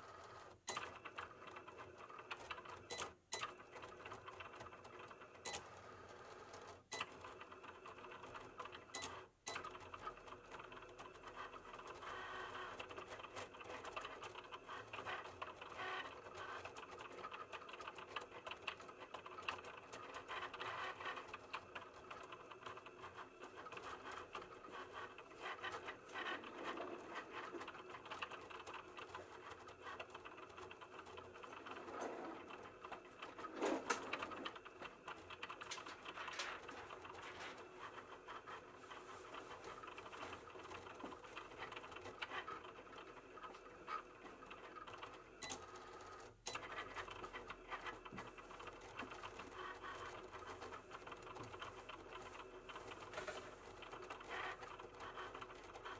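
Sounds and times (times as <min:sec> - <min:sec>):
cutting machine motors whirring: 0:39.3 - 0:55.9.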